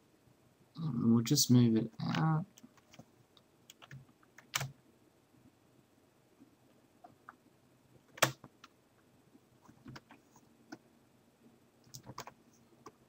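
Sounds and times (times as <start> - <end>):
keyboard keystrokes: 3.7 - 4.7, 8.1 - 8.5, 11.9 - 12.4.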